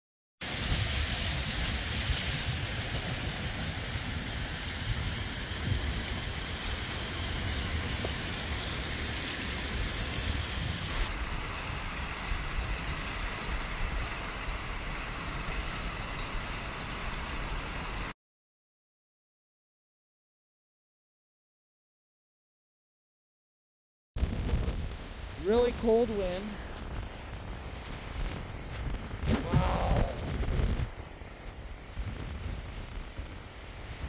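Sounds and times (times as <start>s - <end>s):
wind buffeting microphone: 0.4s - 16.1s, 24.2s - 34.0s
wind rushing through trees: 0.4s - 18.2s, 24.2s - 34.0s.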